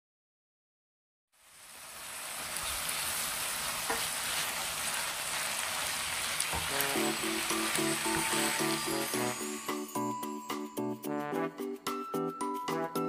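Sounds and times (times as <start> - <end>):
spaghetti sizzling in a frying pan: 1.4 - 10.4
spatula stirring and tossing: 3.4 - 9.8
background music: 6.6 - 13.0.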